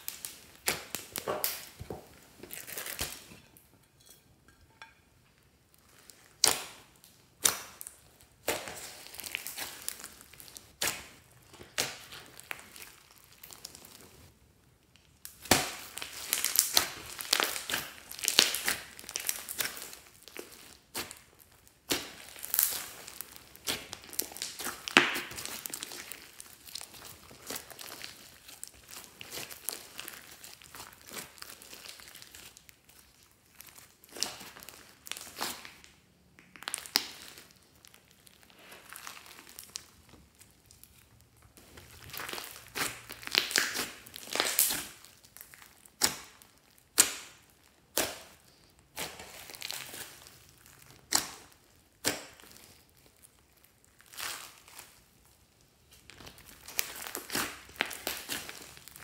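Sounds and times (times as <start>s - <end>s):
hands squishing slime: 0.0s - 3.4s, 5.7s - 14.3s, 15.2s - 59.0s
sticky slime pops: 51.0s - 52.6s.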